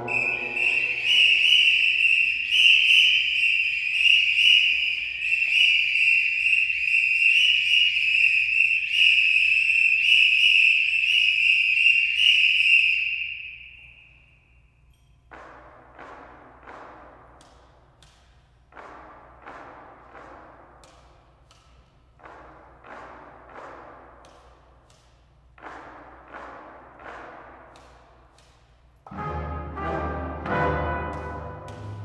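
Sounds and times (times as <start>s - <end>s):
police whistle blast: 0.0s - 14.6s
sharp knocks: 15.3s - 28.6s.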